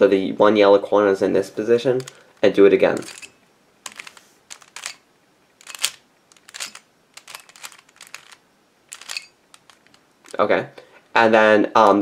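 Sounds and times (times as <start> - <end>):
puzzle cube plastic clacks: 1.9 - 2.3, 2.9 - 5.0, 5.6 - 10.4.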